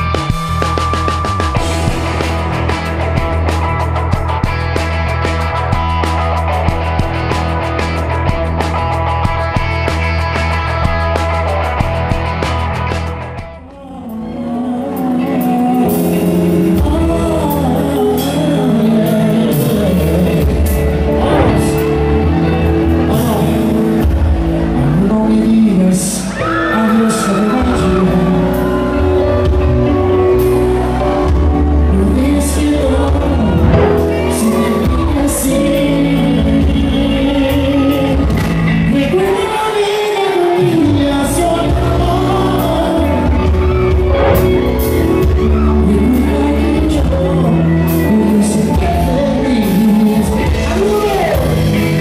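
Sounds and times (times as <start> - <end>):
live band music: 0.0 - 13.7, 15.3 - 25.3, 27.8 - 52.0
man singing: 13.5 - 30.4, 31.8 - 52.0.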